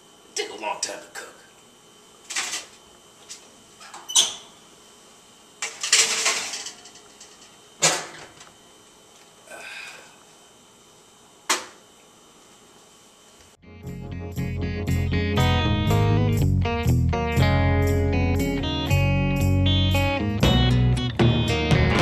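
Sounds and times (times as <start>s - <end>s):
faint squeak: 4.0s - 4.5s
baking tray rattling into oven: 5.6s - 8.4s
baking tray clattering: 5.6s - 8.5s.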